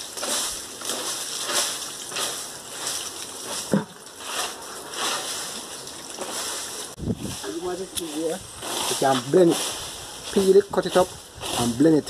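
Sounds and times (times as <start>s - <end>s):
water sloshing in plastic bucket: 0.1s - 7.4s.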